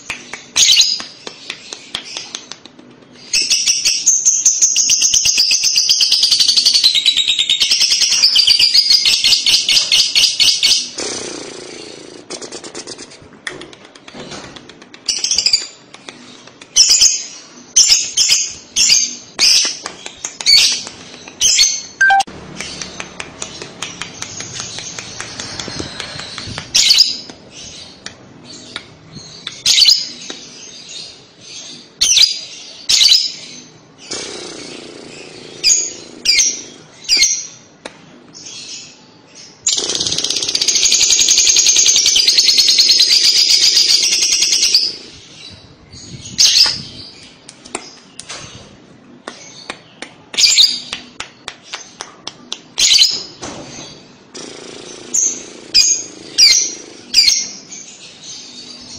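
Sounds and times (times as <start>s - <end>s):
lovebird chirping: 21.4s - 23.6s.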